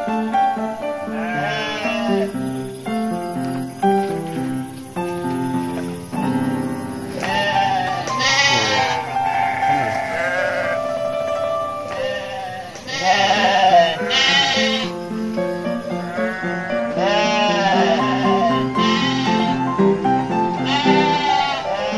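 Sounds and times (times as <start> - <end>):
background music: 0.0 - 21.9
sheep bleating: 1.1 - 2.4, 7.1 - 11.1, 11.8 - 15.0, 16.1 - 19.6, 20.6 - 21.9.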